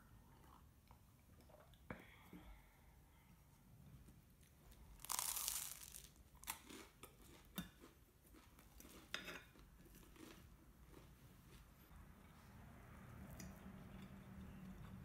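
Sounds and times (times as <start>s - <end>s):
toast crunching: 5.0s - 11.1s.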